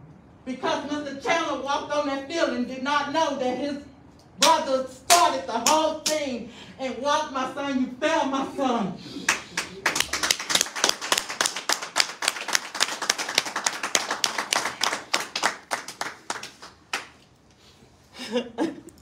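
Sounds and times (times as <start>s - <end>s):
people clapping: 9.2s - 17.3s.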